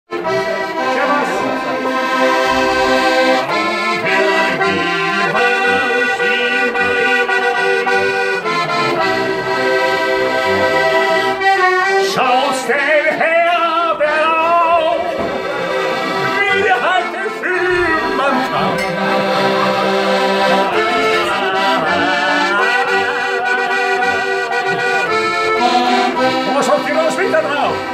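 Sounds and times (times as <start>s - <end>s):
button accordion playing chords: 0.1s - 27.9s
person singing: 3.4s - 9.1s, 11.8s - 19.4s, 20.1s - 26.4s.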